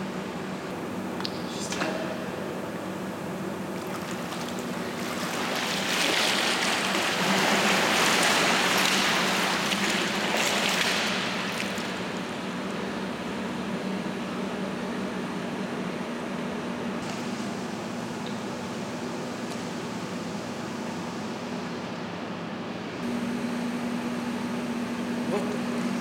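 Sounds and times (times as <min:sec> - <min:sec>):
steady low hum: 0:00.0 - 0:26.0
water splashing and streaming: 0:03.7 - 0:12.4.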